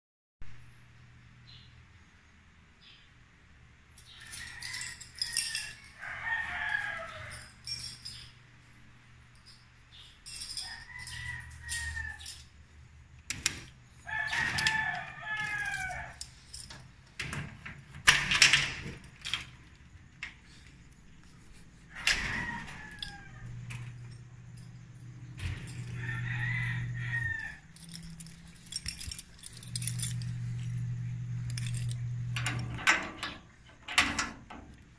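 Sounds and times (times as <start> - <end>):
roosters crowing: 4.0 - 8.2, 10.3 - 16.6, 21.2 - 33.6
keys rattling in lock: 4.0 - 34.9
low steady hum: 7.0 - 34.9.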